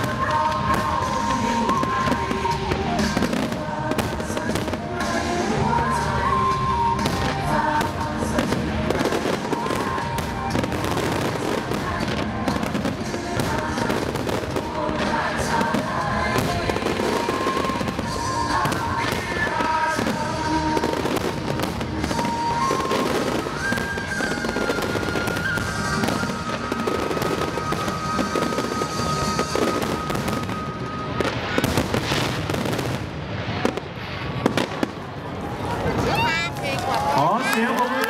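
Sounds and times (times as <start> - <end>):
music with held notes: 0.0 - 31.8
fireworks bangs and crackling: 0.0 - 38.0.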